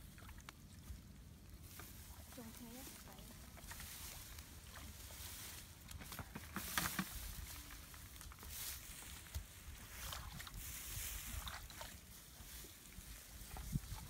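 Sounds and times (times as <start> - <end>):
hands splashing in muddy water: 8.5 - 14.0.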